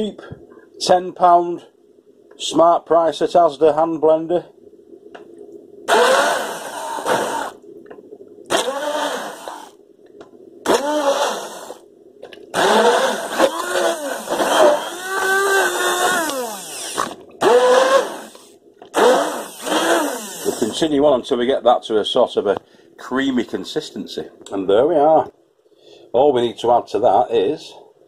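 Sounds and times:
stick blender motor whirring: 0:05.9 - 0:07.6, 0:08.5 - 0:09.8, 0:10.7 - 0:11.8, 0:12.5 - 0:20.8.

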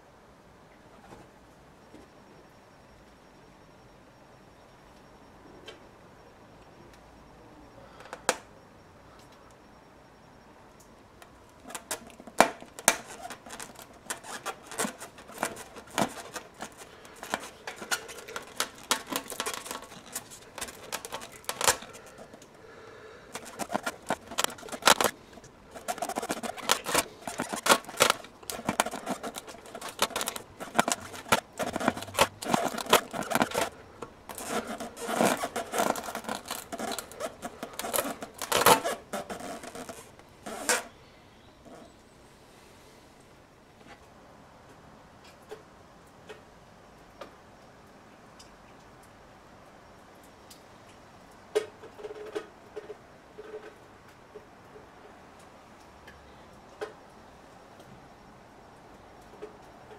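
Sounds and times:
metal rasp scraping rubber tyre: 0:11.7 - 0:22.4, 0:23.3 - 0:40.9.

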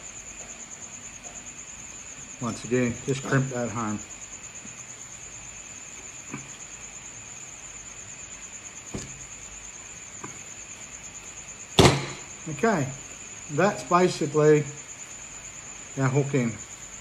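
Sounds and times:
crickets trilling: 0:00.0 - 0:17.0
light knock: 0:08.9 - 0:09.2.

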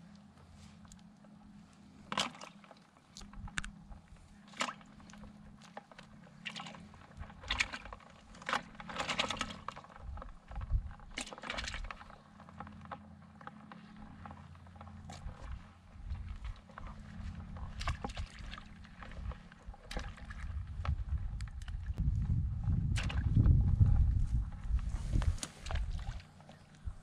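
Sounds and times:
clicks scrapes and rustles: 0:24.7 - 0:26.8.

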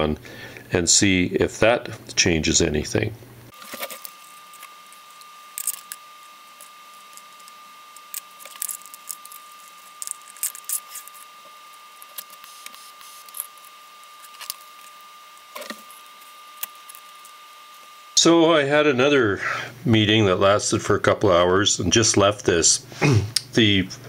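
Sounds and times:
small metal parts clicking: 0:03.6 - 0:06.0.

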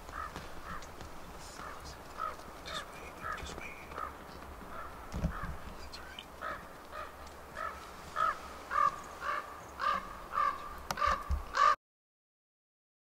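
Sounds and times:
crow-like bird calling: 0:00.0 - 0:11.8.

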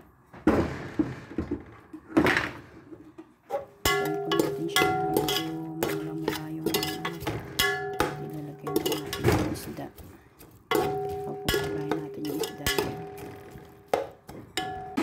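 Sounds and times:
metal skimmer scraping a steel pot: 0:03.5 - 0:09.9, 0:10.7 - 0:13.5.

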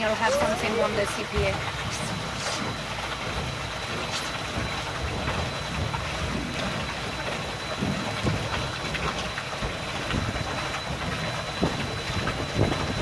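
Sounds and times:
water washing along hull: 0:00.0 - 0:13.0
wind buffeting microphone: 0:07.6 - 0:13.0.

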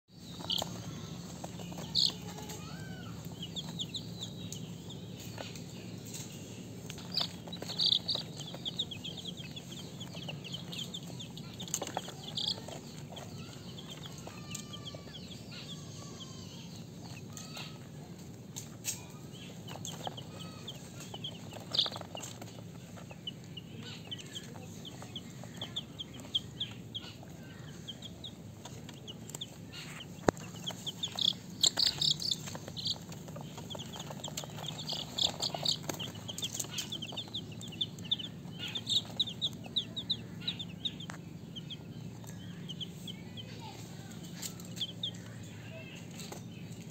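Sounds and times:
baby chicks peeping: 0:00.1 - 0:46.9
steady low hum: 0:00.1 - 0:46.9.

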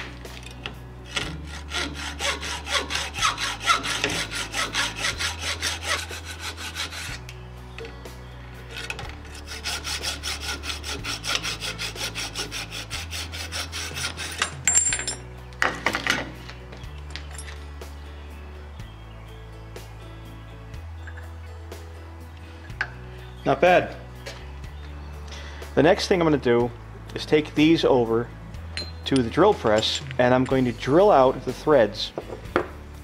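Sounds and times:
hacksaw cutting metal: 0:00.6 - 0:07.4, 0:08.7 - 0:14.7.

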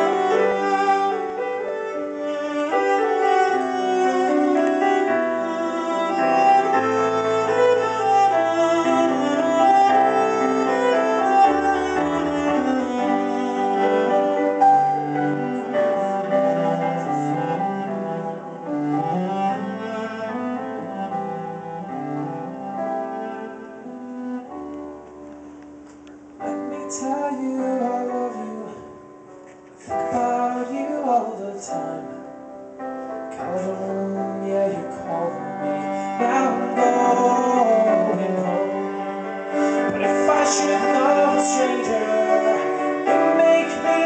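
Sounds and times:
cello bowing: 0:00.0 - 0:32.2, 0:33.0 - 0:44.0
piano chords: 0:00.0 - 0:44.0
man singing: 0:26.7 - 0:29.1, 0:29.9 - 0:32.4, 0:33.4 - 0:44.0.

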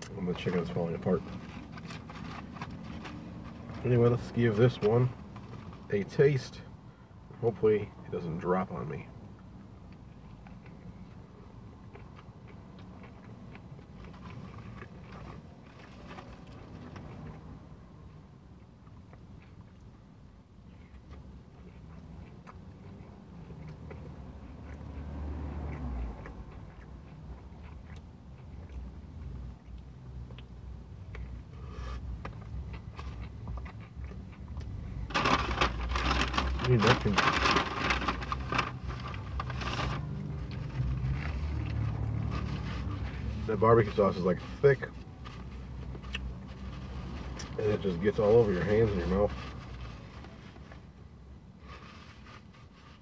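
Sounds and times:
person chewing: 0:09.4 - 0:35.1, 0:45.4 - 0:47.6
paper napkin crinkling: 0:35.1 - 0:45.7.

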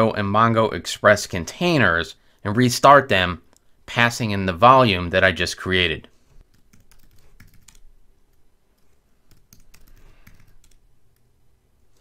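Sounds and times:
faint keyboard typing: 0:06.4 - 0:12.0.

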